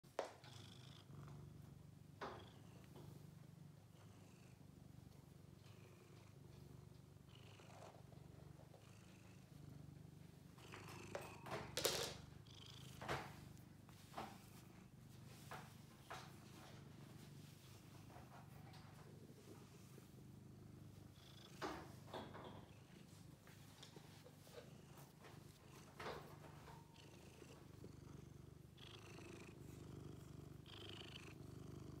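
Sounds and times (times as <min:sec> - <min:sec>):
cat purring: 0:00.0 - 0:32.0
short rustles and knocks: 0:12.9 - 0:20.2, 0:20.9 - 0:27.1.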